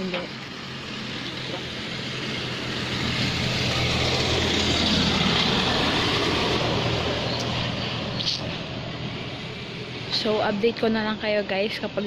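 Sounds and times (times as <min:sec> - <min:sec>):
vehicle passing by: 0:00.0 - 0:12.0.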